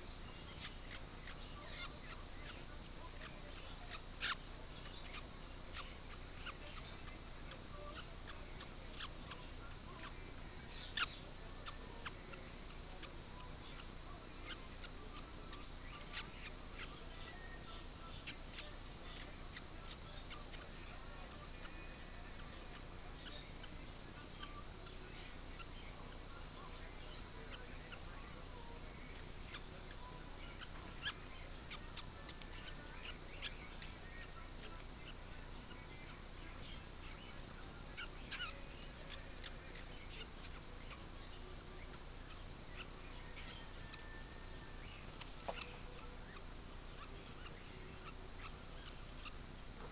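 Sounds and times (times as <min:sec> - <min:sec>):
background hiss: 0:00.0 - 0:49.9
parrot chick cheeping: 0:00.0 - 0:49.9
bird chirps and squeaks: 0:00.2 - 0:49.9.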